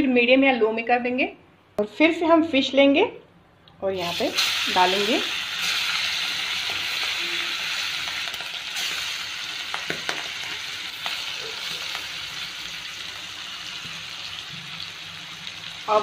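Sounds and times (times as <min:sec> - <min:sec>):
fish sizzling in oil: 0:04.0 - 0:16.0.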